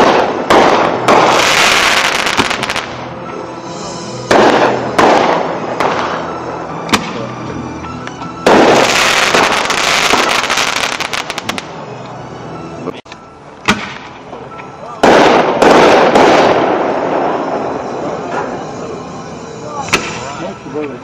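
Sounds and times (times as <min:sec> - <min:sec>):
fireworks booming: 0:00.0 - 0:03.1, 0:04.2 - 0:07.2, 0:08.4 - 0:11.7, 0:15.0 - 0:18.7
fireworks crackling: 0:00.0 - 0:03.3, 0:03.9 - 0:07.3, 0:08.4 - 0:11.8, 0:13.7 - 0:21.0
sharp crack: 0:06.9 - 0:07.2, 0:13.6 - 0:14.2.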